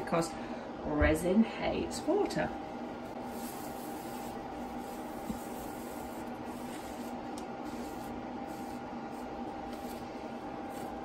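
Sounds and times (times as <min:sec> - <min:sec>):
background hum and hiss: 0:00.0 - 0:11.0
cloth rubbing hard surface: 0:03.1 - 0:11.0.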